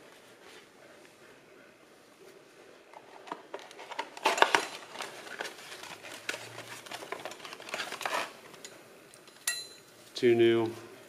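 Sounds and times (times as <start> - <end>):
paper wrapping rustling: 2.9 - 8.7.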